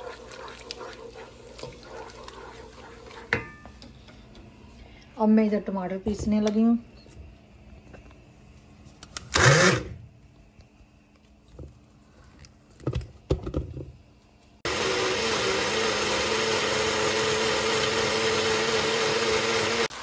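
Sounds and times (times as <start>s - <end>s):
blender motor whining: 9.3s - 10.0s, 14.7s - 20.0s.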